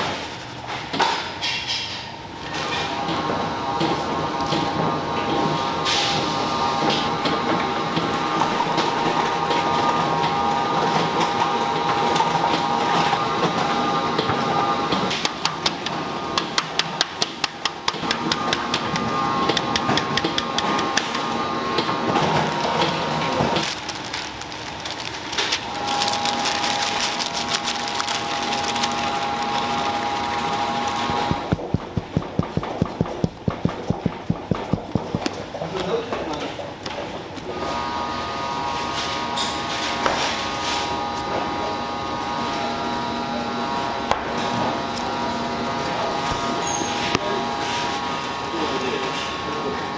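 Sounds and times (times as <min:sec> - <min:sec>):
machine hum with whine: 0:17.8 - 0:35.8, 0:36.9 - 0:49.9
baking paper crinkling: 0:22.0 - 0:32.1.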